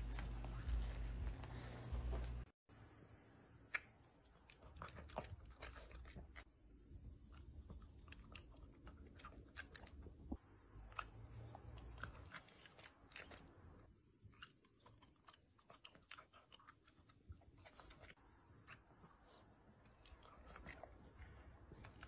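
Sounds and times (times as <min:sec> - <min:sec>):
puppy chewing and smacking lips: 0:03.7 - 0:06.5, 0:07.2 - 0:22.0.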